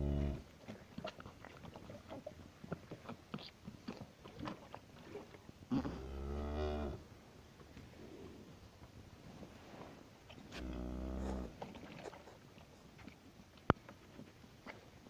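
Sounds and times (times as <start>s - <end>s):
cow mooing: 0.0s - 0.4s, 5.7s - 7.0s, 10.6s - 11.5s.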